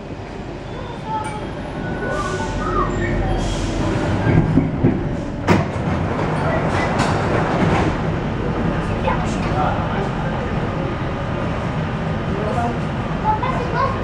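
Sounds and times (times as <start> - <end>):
train ride noise from inside: 0.0 - 14.0.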